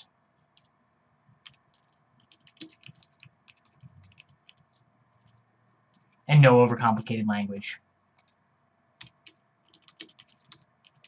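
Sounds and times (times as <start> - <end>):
faint typing on keyboard: 0.0 - 6.2, 8.1 - 8.4, 9.0 - 11.0.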